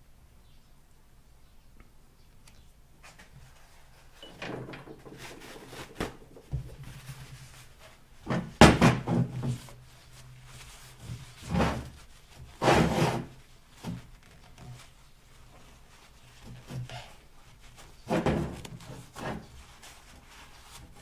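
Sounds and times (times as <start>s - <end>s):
metal jack knocking and scraping: 4.2s - 6.9s
towel rubbing on metal: 9.3s - 21.0s.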